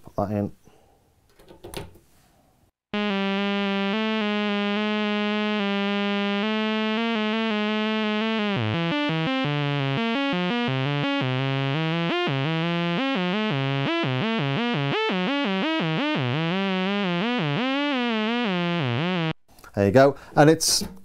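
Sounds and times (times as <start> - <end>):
buzzy synthesizer tone: 2.9 - 19.4.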